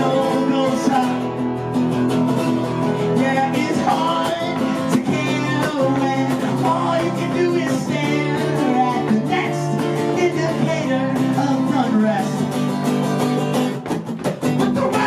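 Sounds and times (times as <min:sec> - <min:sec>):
man singing: 0:00.0 - 0:01.5, 0:02.8 - 0:12.8, 0:14.4 - 0:15.0
acoustic guitar strumming: 0:00.0 - 0:15.0.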